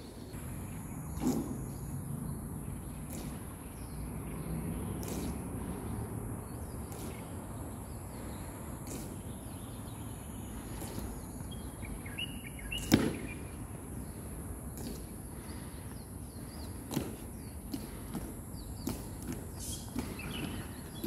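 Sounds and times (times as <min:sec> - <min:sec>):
bird chirps: 0:00.0 - 0:14.2, 0:15.4 - 0:21.0
insect buzz: 0:00.0 - 0:21.0
boots striking stone steps: 0:12.7 - 0:13.4, 0:16.5 - 0:21.0.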